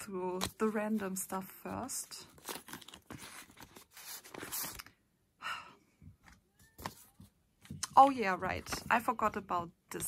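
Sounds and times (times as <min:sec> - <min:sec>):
rustling of cards and packaging: 0:00.1 - 0:05.0, 0:06.2 - 0:09.4.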